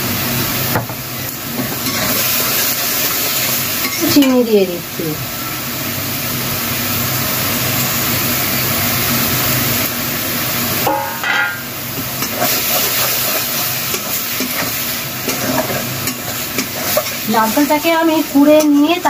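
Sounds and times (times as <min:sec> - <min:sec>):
paste sizzling in hot oil: 0:00.0 - 0:19.0
spatula scraping and stirring: 0:01.6 - 0:04.0, 0:12.2 - 0:17.4.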